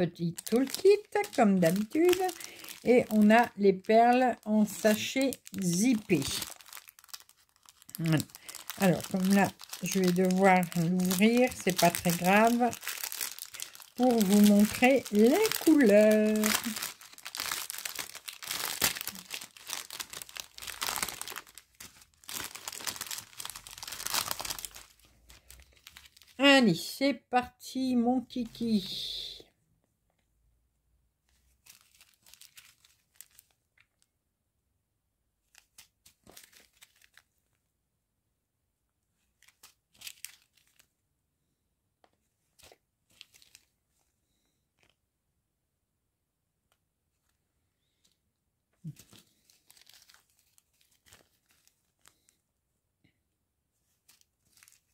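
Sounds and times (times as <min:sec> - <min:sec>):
plastic packaging crinkling: 0:00.0 - 0:26.4, 0:31.4 - 0:34.1, 0:35.4 - 0:37.4, 0:39.4 - 0:40.9, 0:42.6 - 0:43.8, 0:44.8 - 0:45.0, 0:48.8 - 0:52.4, 0:53.8 - 0:54.9.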